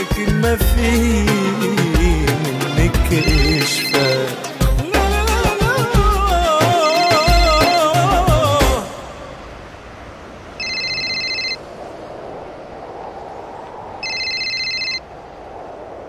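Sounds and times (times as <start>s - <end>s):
music: 0.0s - 9.0s
mobile phone ringing: 3.2s - 4.5s, 10.6s - 11.6s, 14.0s - 15.0s.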